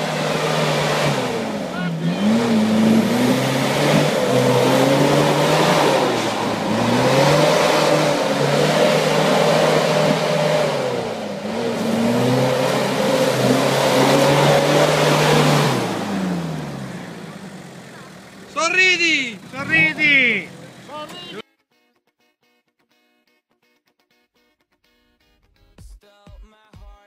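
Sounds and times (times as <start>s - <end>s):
wheels spinning in mud: 0.0s - 18.5s
car engine revving hard: 0.0s - 21.4s.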